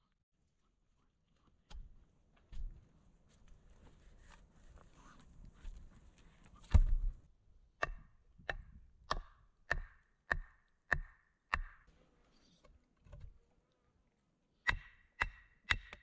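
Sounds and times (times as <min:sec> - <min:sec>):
hand tool pounding wooden post: 0:07.8 - 0:11.8, 0:14.7 - 0:16.0.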